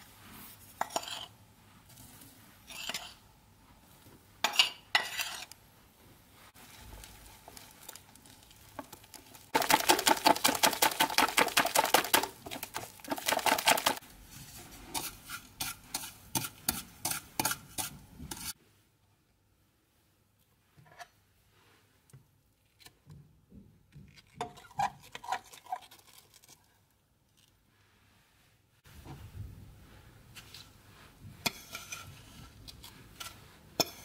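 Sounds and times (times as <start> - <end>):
whisk beating batter in bowl: 9.5 - 14.0, 14.9 - 18.5.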